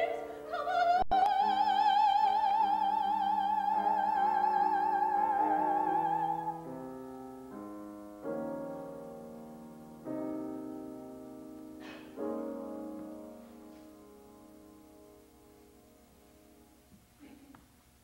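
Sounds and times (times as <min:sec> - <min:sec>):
woman singing operatically: 0:00.0 - 0:06.5
piano chords: 0:00.0 - 0:16.9.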